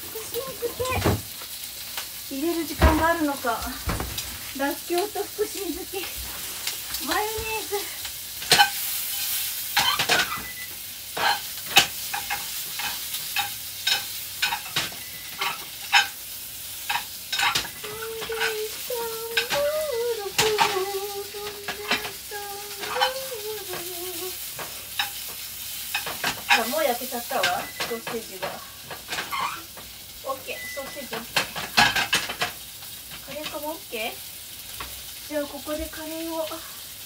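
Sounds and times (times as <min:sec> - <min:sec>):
food sizzling in frying pan: 0:00.0 - 0:37.0
spatula stirring and scraping: 0:11.2 - 0:16.2, 0:16.8 - 0:29.8.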